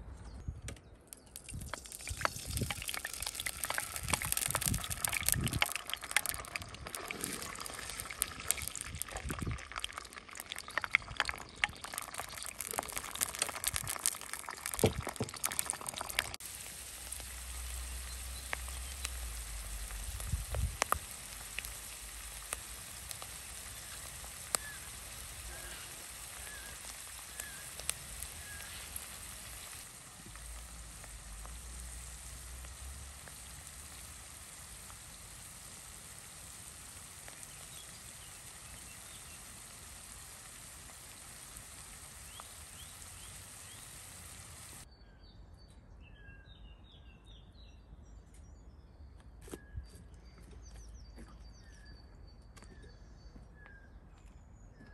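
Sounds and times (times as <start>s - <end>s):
oil popping: 1.1s - 44.8s
food sizzling in a pan: 1.5s - 44.9s.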